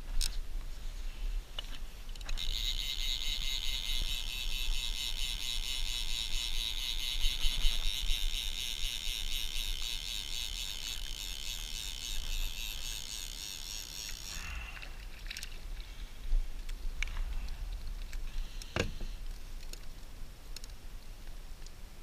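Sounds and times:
fly reel drag ratcheting: 0:02.1 - 0:15.6.

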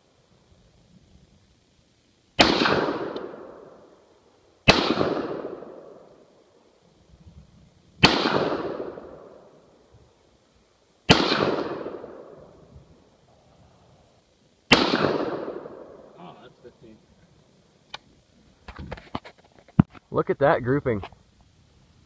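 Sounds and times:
rifle shots with echo: 0:02.4 - 0:04.0, 0:04.6 - 0:06.4, 0:08.0 - 0:09.6, 0:11.1 - 0:12.6, 0:14.7 - 0:16.3.

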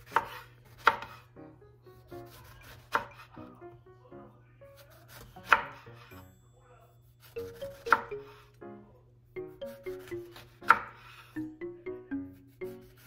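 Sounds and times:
knife cutting on wooden board: 0:00.0 - 0:01.3, 0:02.2 - 0:03.3, 0:09.9 - 0:11.2
background music: 0:00.8 - 0:06.6, 0:07.2 - 0:13.0.

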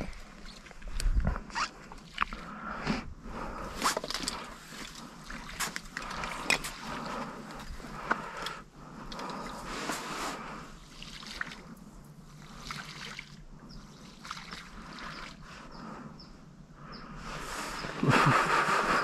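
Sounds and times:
water sloshing and trickling: 0:00.0 - 0:02.8, 0:03.6 - 0:15.8.

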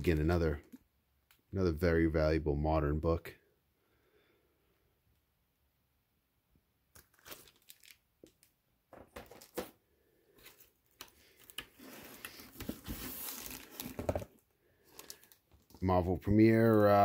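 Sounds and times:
crumpled paper rustling: 0:07.0 - 0:08.4, 0:10.4 - 0:17.0
plastic bags crinkling: 0:07.0 - 0:08.5, 0:13.1 - 0:15.7.

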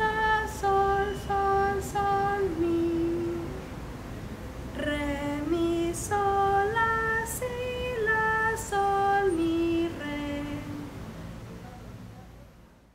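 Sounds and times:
woman singing unaccompanied: 0:00.0 - 0:03.8, 0:04.7 - 0:11.2.

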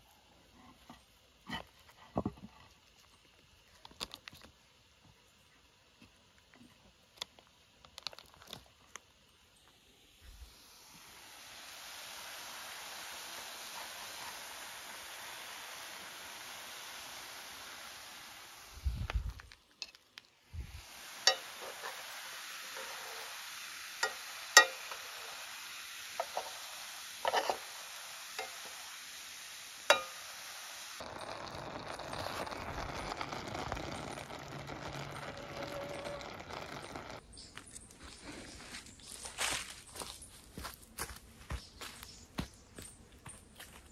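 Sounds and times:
food sizzling in pot: 0:10.0 - 0:37.2
liquid simmering: 0:31.0 - 0:37.2.

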